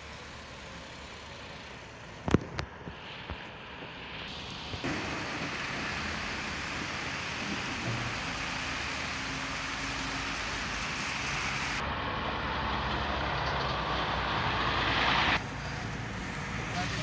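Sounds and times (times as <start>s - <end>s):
diesel truck running: 0.0s - 17.0s
rushing noise: 3.9s - 12.7s.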